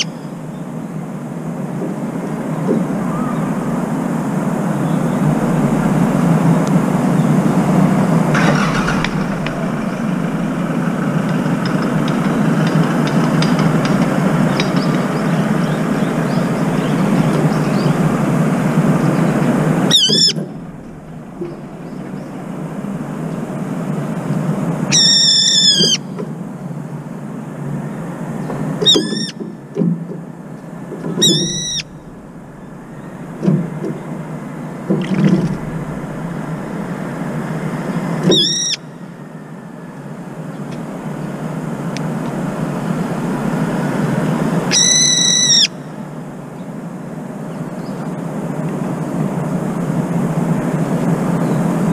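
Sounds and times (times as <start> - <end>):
steady low rumble: 0.0 - 28.8, 29.5 - 51.9
bird giving shrill harsh calls: 19.9 - 20.6, 24.9 - 26.1, 28.8 - 29.4, 31.2 - 32.1, 38.3 - 38.9, 44.7 - 45.8.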